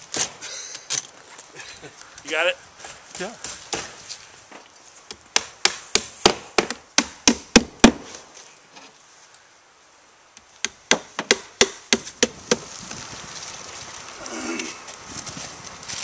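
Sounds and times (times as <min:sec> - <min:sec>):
hammer nailing wood shingles: 0:05.3 - 0:08.2, 0:10.6 - 0:12.7.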